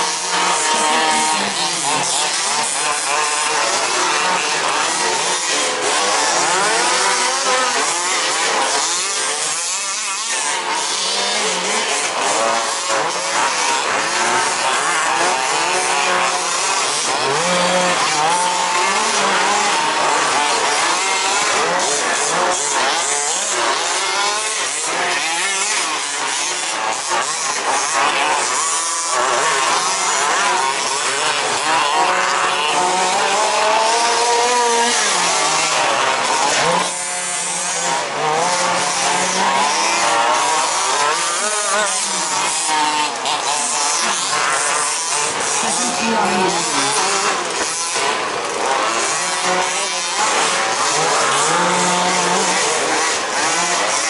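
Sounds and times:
small engines buzzing: 0.0 - 54.0.

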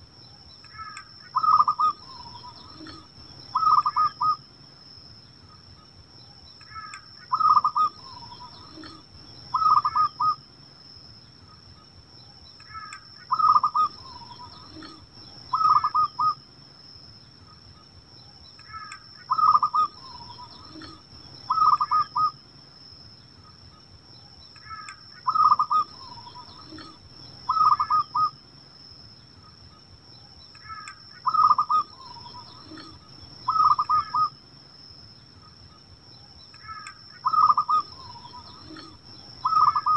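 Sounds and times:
dove cooing: 0.8 - 4.4, 6.7 - 10.4, 12.7 - 16.4, 18.7 - 22.3, 24.7 - 28.3, 30.7 - 34.3, 36.6 - 39.9.

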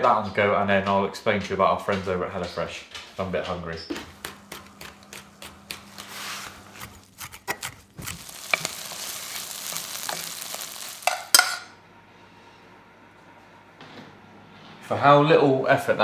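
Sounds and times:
chicken sizzling in frying pan: 8.0 - 11.7.

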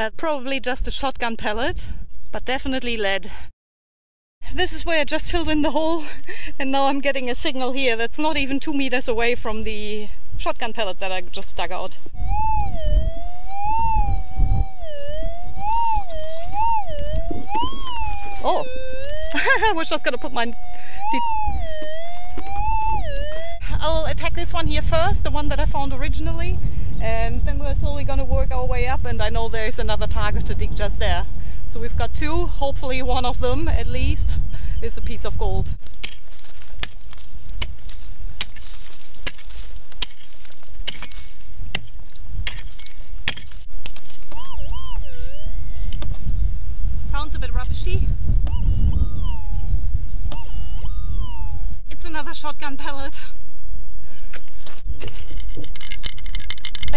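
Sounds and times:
low rumble: 11.2 - 32.2
metal detector warbling tone: 12.2 - 24.3, 44.3 - 46.0, 48.4 - 51.8
pick striking stony ground: 35.8 - 44.4.

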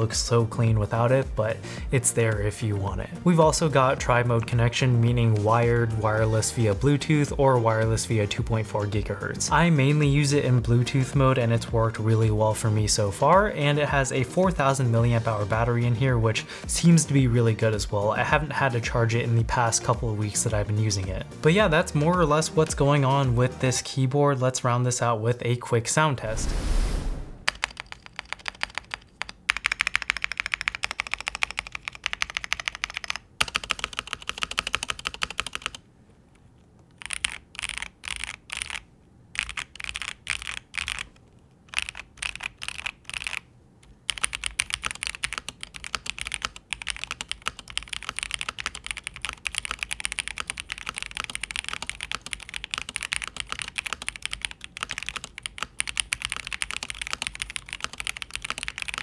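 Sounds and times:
mechanical keyboard typing: 27.5 - 35.8, 36.9 - 43.5, 44.1 - 59.0.

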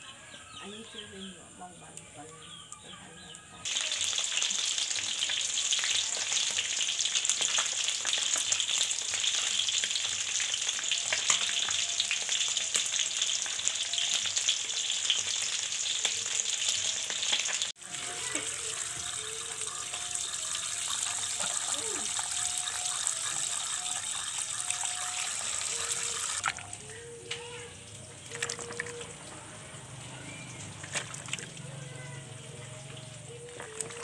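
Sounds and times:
fish sizzling in hot oil: 3.6 - 26.5
water pouring and splashing: 3.6 - 26.9, 27.9 - 29.4, 30.3 - 34.0.

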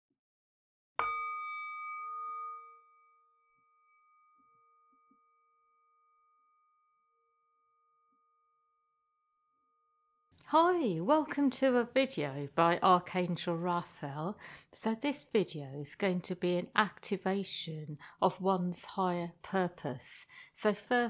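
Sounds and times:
metal singing bowl ringing: 1.0 - 10.1.

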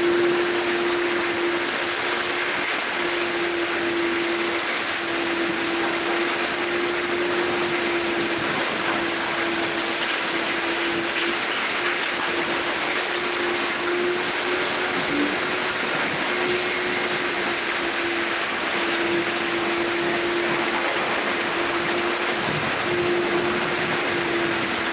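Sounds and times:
shop vacuum running: 0.0 - 24.9.

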